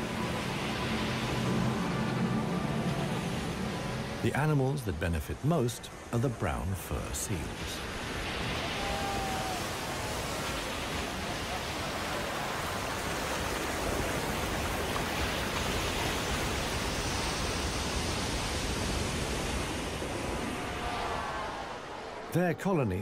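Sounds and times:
surf crashing over rocks: 4.3 - 22.6.

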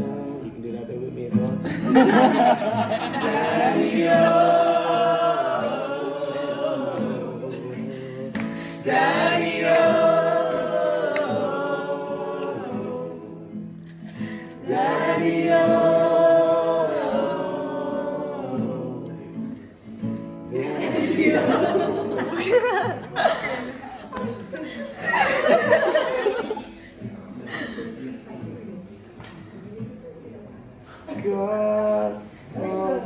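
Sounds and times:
strummed acoustic guitar: 0.0 - 23.1
voices singing along: 1.9 - 19.3, 20.5 - 26.9.

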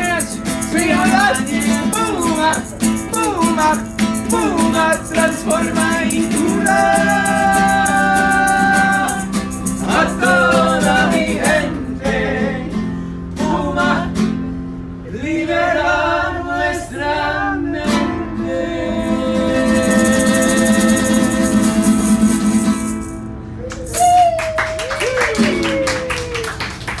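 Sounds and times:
maraca shaking: 0.0 - 11.8, 19.4 - 25.8
men singing together: 0.0 - 12.8, 13.4 - 14.2, 15.1 - 22.4
strummed classical guitar: 0.0 - 15.0, 17.8 - 23.6.

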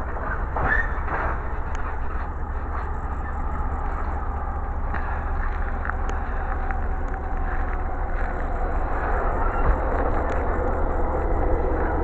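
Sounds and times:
wheel squeal: 0.0 - 4.1, 8.6 - 12.0
freight train wheels rumbling on rail: 0.0 - 12.0.

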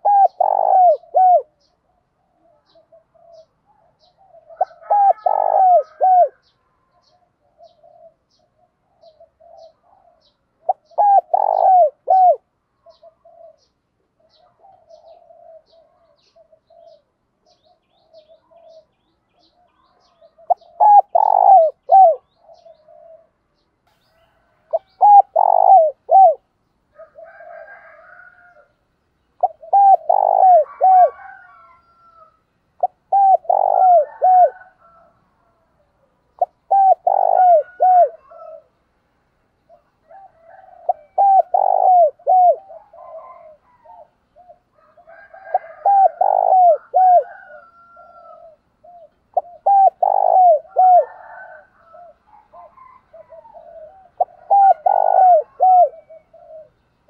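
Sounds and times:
dove cooing: 0.0 - 23.4, 24.2 - 28.7, 29.4 - 38.8, 39.7 - 56.8
soft low coos: 29.4 - 35.8, 45.2 - 56.8.

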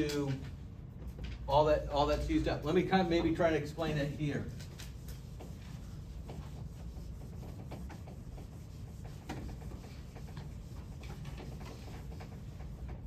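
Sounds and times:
low room hum: 0.0 - 13.0
writing scratches on a board: 4.5 - 13.0.

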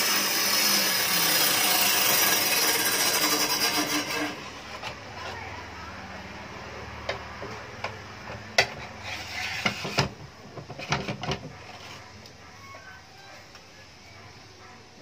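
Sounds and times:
table saw motor humming: 0.0 - 4.7.

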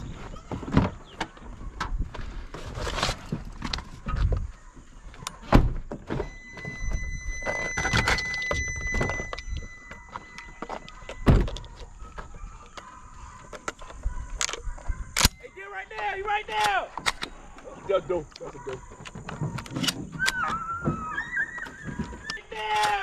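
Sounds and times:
knocks and rustling: 0.0 - 6.9, 18.4 - 20.2
steady high tone: 6.2 - 11.3.

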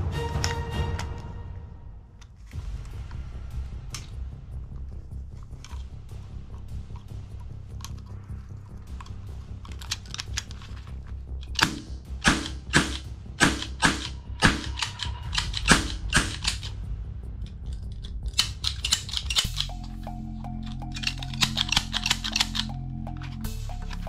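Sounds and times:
background music: 0.0 - 24.0
rattle of clicks: 6.5 - 12.0, 12.7 - 16.8, 17.4 - 24.0
toy gun snaps: 18.2 - 19.8.

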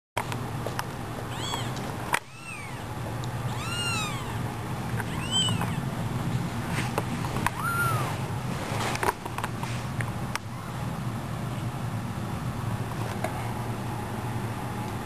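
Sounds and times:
kitten mewing: 1.3 - 6.0, 7.4 - 8.2.

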